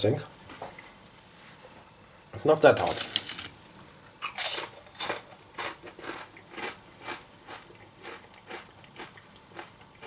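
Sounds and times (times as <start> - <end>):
potato chips being chewed: 4.2 - 10.0.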